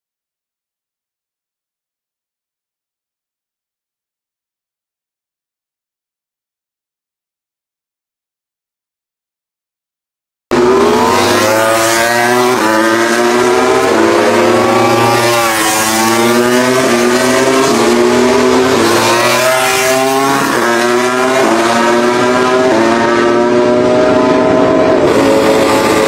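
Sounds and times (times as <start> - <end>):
racing motorcycle engines revving: 10.5 - 26.0.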